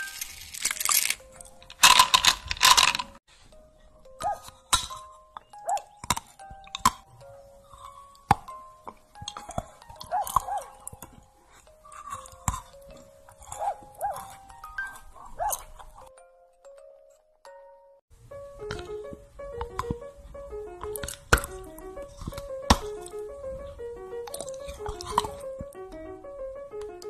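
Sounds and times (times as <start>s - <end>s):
chocolates crunching: 0.0s - 3.2s, 4.5s - 16.1s, 20.8s - 25.8s
plinking background music: 0.0s - 27.0s
soft clicks and bites: 4.2s - 16.1s, 20.8s - 25.9s.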